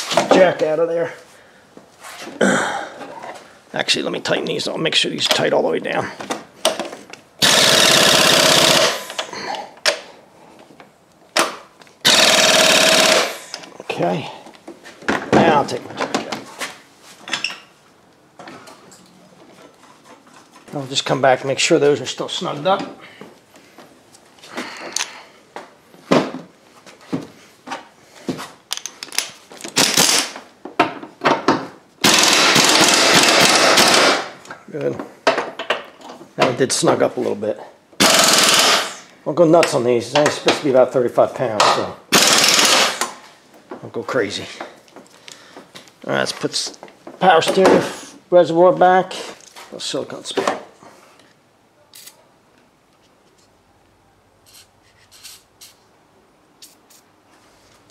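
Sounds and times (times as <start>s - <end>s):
pneumatic impact wrench hammering: 7.4s - 10.1s, 11.4s - 13.6s, 29.7s - 30.4s, 32.0s - 34.4s, 38.0s - 39.1s, 42.1s - 43.2s.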